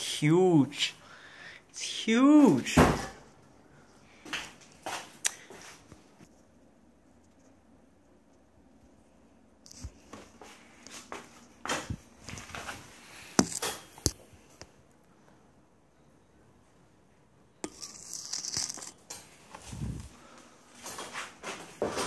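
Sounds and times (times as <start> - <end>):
camera handling rustling: 11.8 - 14.2.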